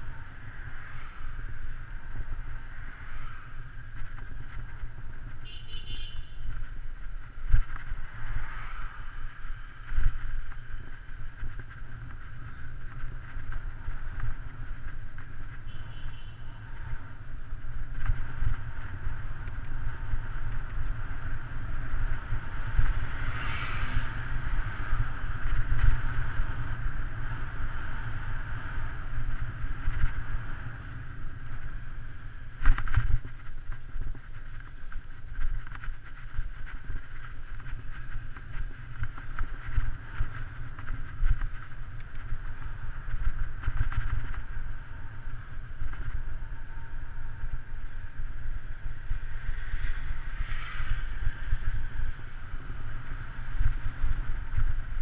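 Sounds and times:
tyre and road noise: 0.0 - 55.0
wind buffeting microphone: 16.6 - 55.0.

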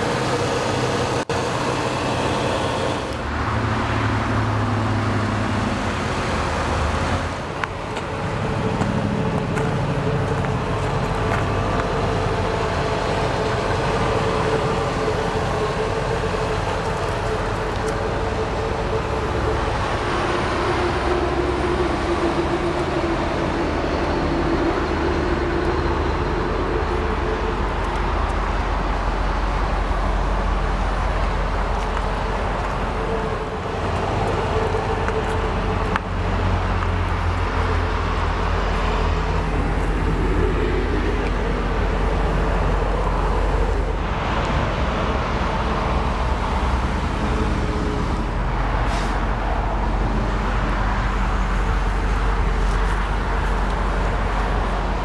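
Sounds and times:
car engine idling: 0.0 - 48.7.

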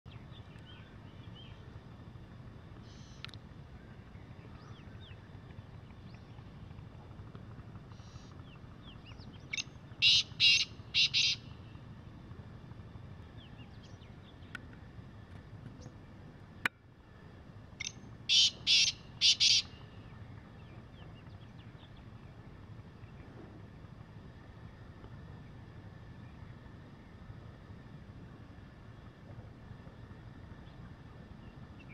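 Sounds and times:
small birds chirping faintly: 0.1 - 31.9
francolin harsh call: 9.6 - 11.6, 17.8 - 19.8.

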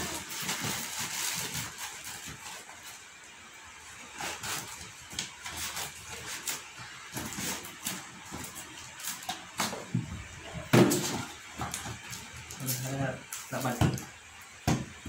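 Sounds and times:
foam packing scraping: 0.0 - 10.0
plastic wrap rustling: 0.0 - 14.0.

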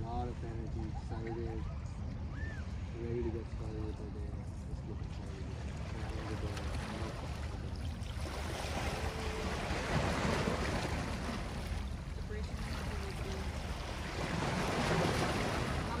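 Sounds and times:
small waves lapping against rocks: 3.4 - 16.0.

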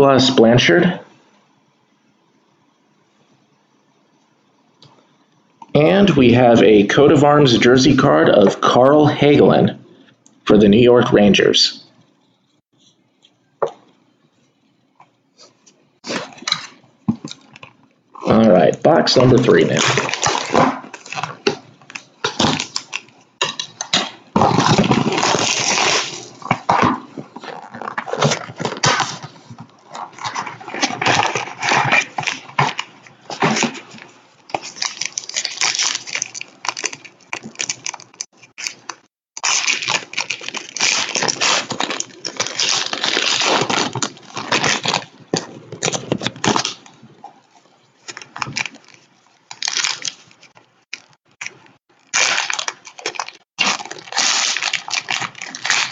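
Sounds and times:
plastic packaging rustling and tearing: 15.4 - 55.9.

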